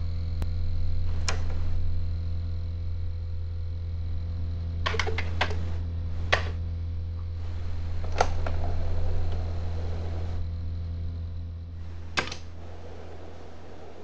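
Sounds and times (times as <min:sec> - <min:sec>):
low hum: 0:00.0 - 0:14.0
tape deck play key clunk: 0:04.9 - 0:06.6, 0:12.1 - 0:12.6
tape motor whirring: 0:07.4 - 0:10.5.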